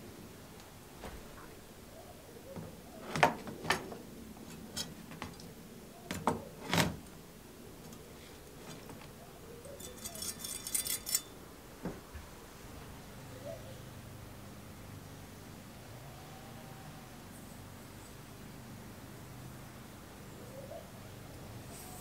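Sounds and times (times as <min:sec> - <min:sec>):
scratchy rattle: 0:09.7 - 0:11.3.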